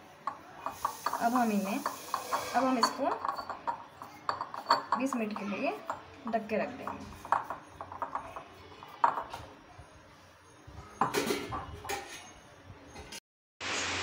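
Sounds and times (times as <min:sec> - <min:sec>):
glass bowl clinking on stone counter: 0:00.2 - 0:09.5, 0:10.9 - 0:12.4.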